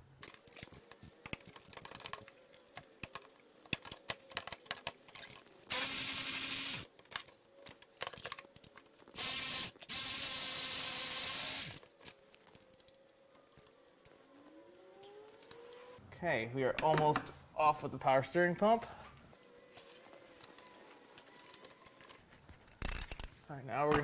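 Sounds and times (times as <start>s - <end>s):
power tool motor spinning: 5.7s - 6.9s, 9.1s - 11.8s
ratchet wrench clicking: 5.7s - 6.9s, 9.2s - 11.8s, 22.8s - 23.3s.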